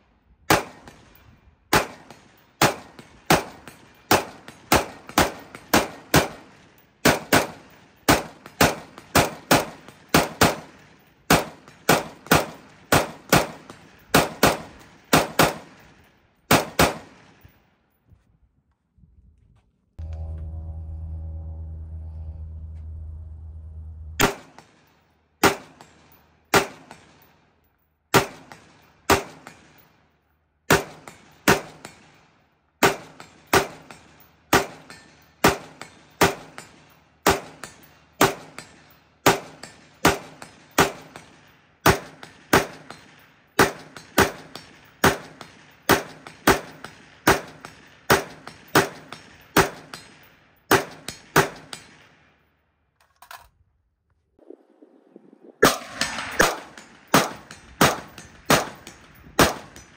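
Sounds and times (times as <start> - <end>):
rifle gunshots with echo: 0.5 - 17.5, 24.2 - 27.3, 28.1 - 29.8, 30.7 - 32.2, 32.8 - 52.2, 55.6 - 59.9.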